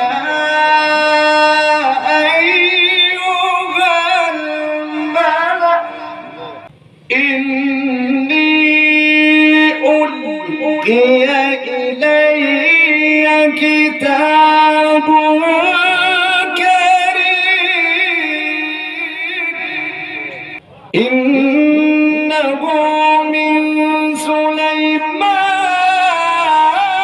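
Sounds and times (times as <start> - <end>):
man chanting through loudspeakers: 0.0 - 27.0.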